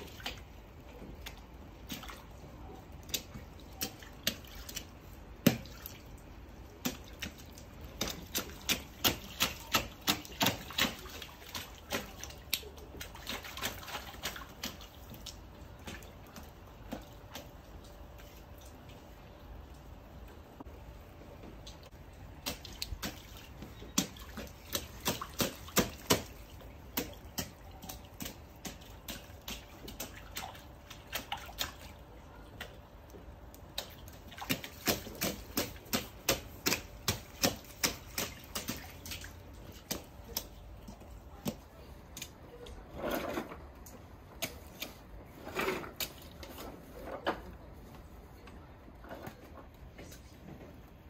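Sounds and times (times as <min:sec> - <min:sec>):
boots splashing through a puddle: 0:00.0 - 0:19.1, 0:22.2 - 0:32.8, 0:33.5 - 0:42.4.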